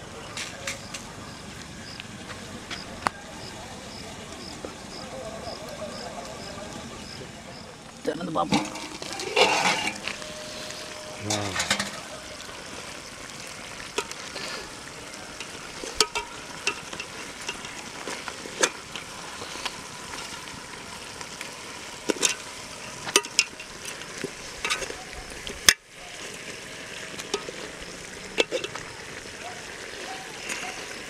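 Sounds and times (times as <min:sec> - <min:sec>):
meat sizzling: 0:00.0 - 0:31.0
metal spoon scraping pot: 0:08.5 - 0:12.0.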